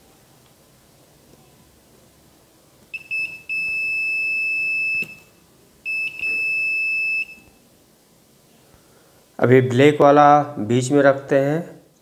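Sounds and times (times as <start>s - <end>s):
multimeter continuity beeping: 2.9s - 7.6s.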